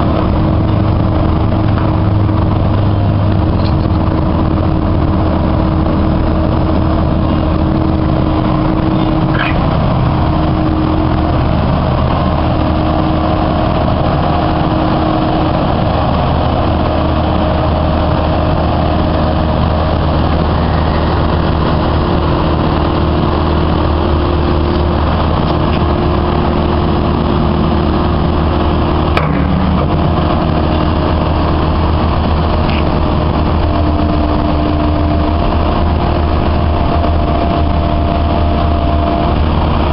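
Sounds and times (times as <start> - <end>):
excavator diesel engine droning: 0.0 - 39.9
hydraulic hum shifting in pitch: 0.0 - 39.9.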